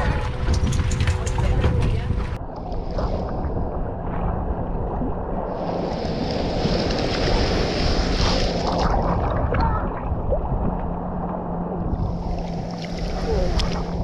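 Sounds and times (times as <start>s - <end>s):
small waves breaking: 5.4s - 14.0s.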